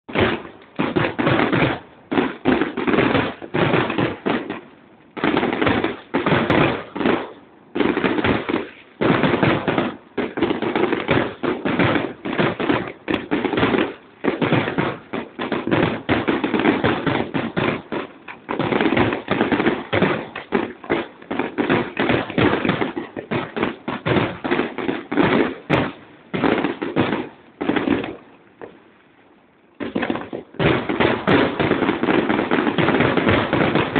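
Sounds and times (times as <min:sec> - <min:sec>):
fireworks bursting and crackling: 0:00.0 - 0:33.9.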